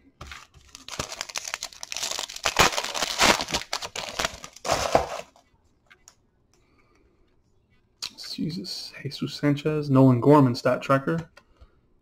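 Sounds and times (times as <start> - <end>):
foil wrapper crinkling: 0.2 - 5.3.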